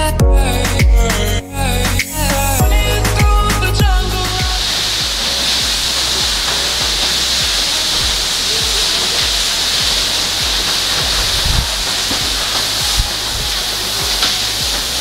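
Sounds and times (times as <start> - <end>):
music: 0.0 - 15.0
waterfall rushing: 2.6 - 15.0.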